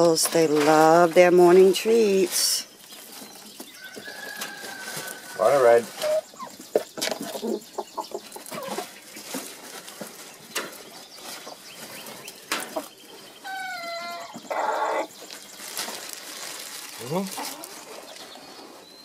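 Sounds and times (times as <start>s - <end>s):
hens clucking: 0.0s - 16.0s, 17.0s - 18.8s
hen drawn-out call: 13.4s - 15.1s.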